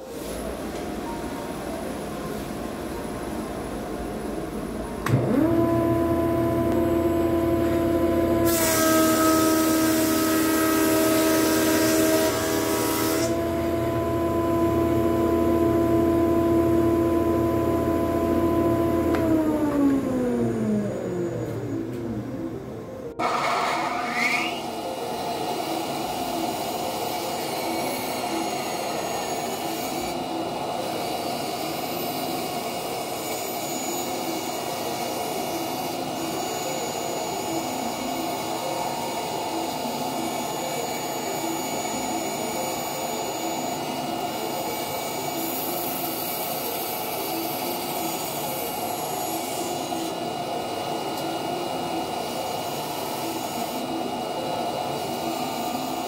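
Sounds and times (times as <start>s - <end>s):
bandsaw cutting wood: 5.2s - 14.8s.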